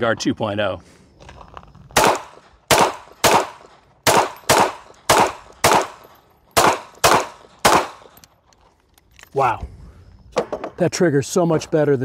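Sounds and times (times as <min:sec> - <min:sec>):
pistol shots: 0:02.0 - 0:08.2.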